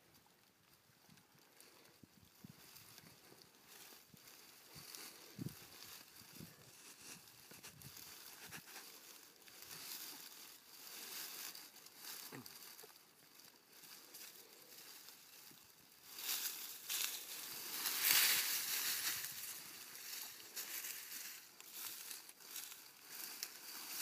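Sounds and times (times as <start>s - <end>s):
dry leaves rustling: 1.4s - 24.0s
hands scraping soil: 6.4s - 9.5s.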